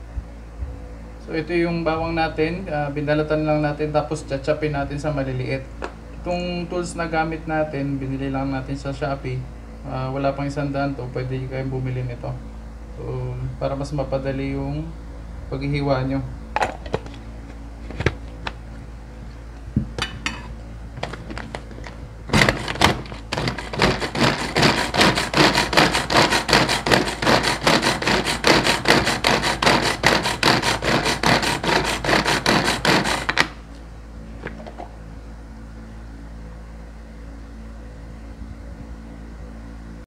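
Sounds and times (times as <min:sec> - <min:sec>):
pull-cord chopper clattering: 0:22.3 - 0:33.6.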